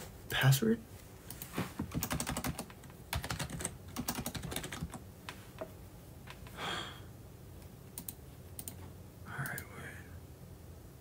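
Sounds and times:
keyboard typing: 0:01.3 - 0:05.0, 0:08.0 - 0:08.8.

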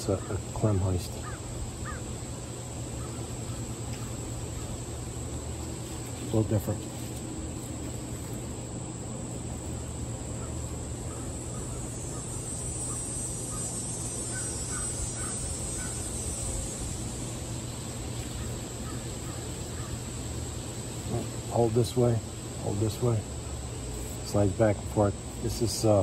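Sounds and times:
crickets chirping drone: 0:00.0 - 0:26.0
quick bird calls: 0:09.8 - 0:16.2.

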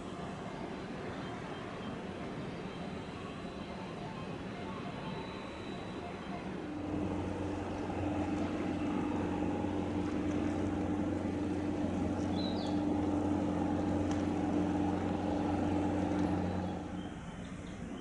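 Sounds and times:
ship diesel engines droning: 0:00.0 - 0:18.0
bird chirp: 0:12.2 - 0:13.1, 0:15.7 - 0:18.0.

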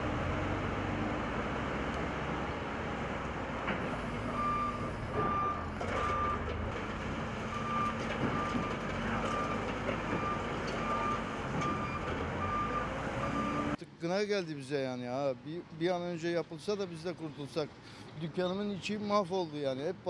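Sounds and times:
engine rumble: 0:00.0 - 0:13.8
reversing alarm beeping: 0:04.2 - 0:06.5, 0:07.5 - 0:13.8.

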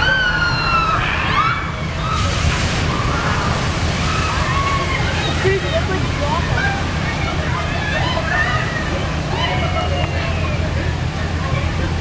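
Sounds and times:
riders screaming: 0:00.0 - 0:05.8
loud rushing water splash: 0:01.4 - 0:11.3.

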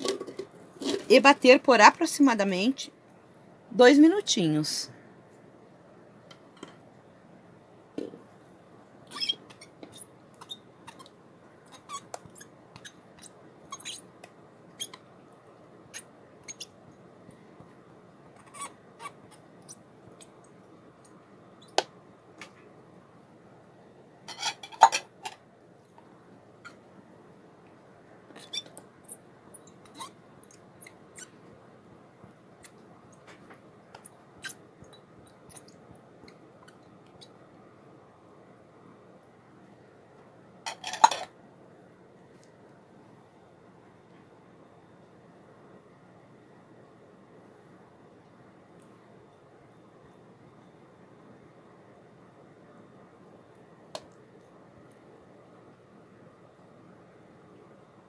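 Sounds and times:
plastic cup squeaking and crackling: 0:09.1 - 0:14.1, 0:15.9 - 0:16.7, 0:18.4 - 0:20.3, 0:28.3 - 0:29.2, 0:29.8 - 0:30.2.

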